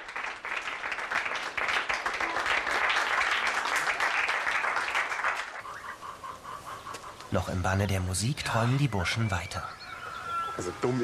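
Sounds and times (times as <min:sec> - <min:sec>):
audience applauding: 0:00.0 - 0:05.6.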